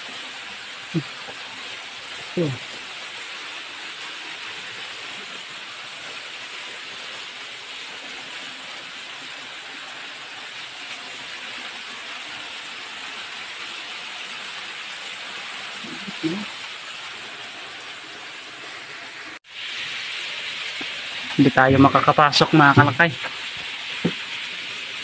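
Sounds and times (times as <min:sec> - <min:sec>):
waterfall rushing: 0:20.2 - 0:25.0.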